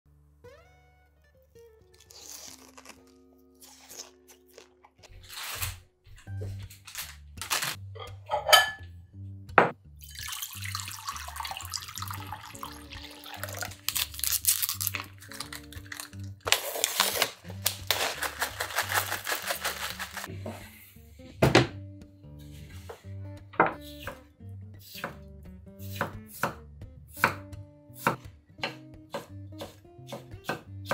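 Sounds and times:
background music: 0.1 - 30.9
water pouring into ceramic bowls: 10.0 - 16.4.

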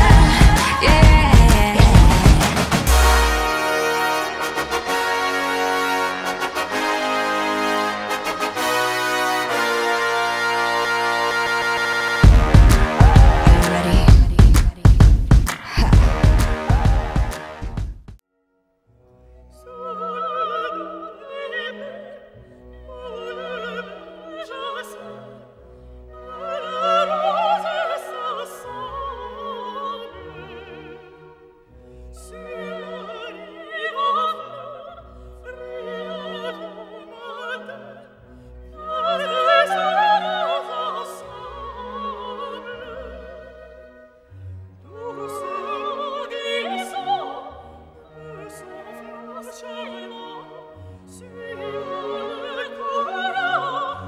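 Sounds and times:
operatic singing with vibrato: 0.0 - 17.9, 19.6 - 25.5, 26.1 - 31.4, 32.2 - 54.0
orchestra playing: 0.0 - 18.2.

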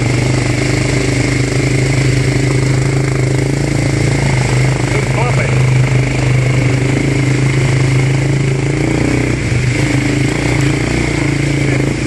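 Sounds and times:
quad bike engine running: 0.0 - 12.0.

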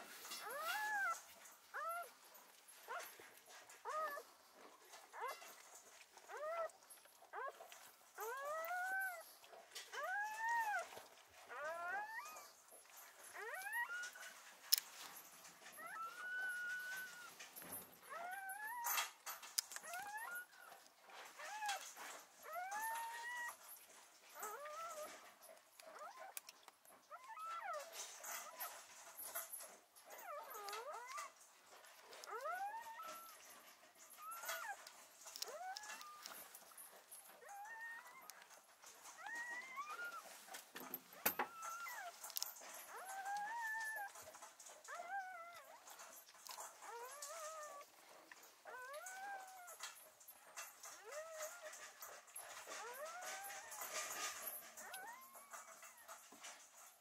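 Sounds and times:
puppy crying: 0.4 - 2.2, 8.2 - 12.6, 15.7 - 17.4, 30.1 - 31.4, 34.1 - 40.4, 41.1 - 44.2, 48.6 - 49.9.

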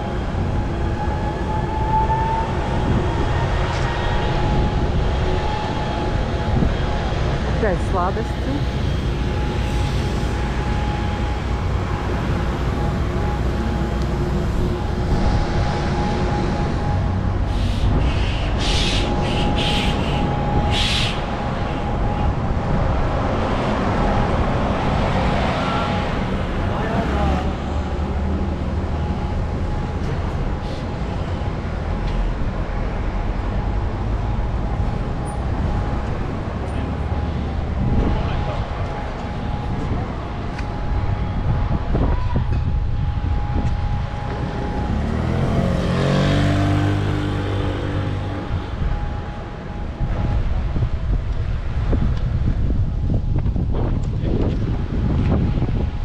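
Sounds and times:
low rumble of street noise: 0.0 - 56.0.

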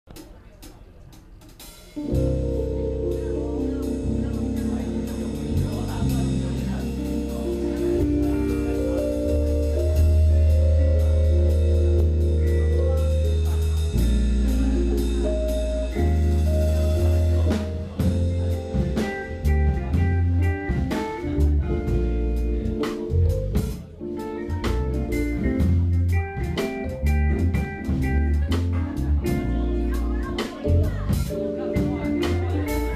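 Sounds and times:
drum kit: 0.1 - 32.9
keyboard: 0.1 - 32.9
electric bass: 2.0 - 32.9
electric guitar: 2.0 - 32.9.

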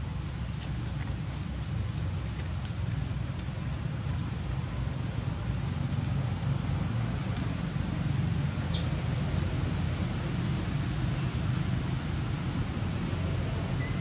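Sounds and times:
low outdoor rumble: 0.0 - 14.0
faint high chirp: 13.8 - 14.0.

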